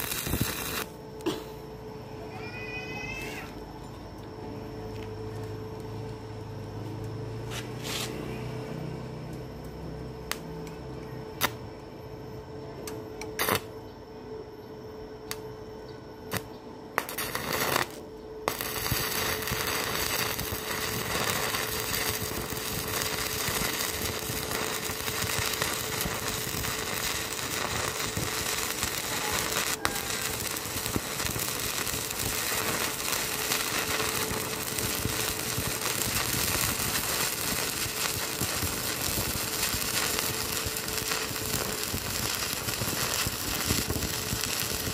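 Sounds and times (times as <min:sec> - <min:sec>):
welding arc crackle: 0:00.0 - 0:01.0, 0:13.3 - 0:13.7, 0:16.3 - 0:44.9.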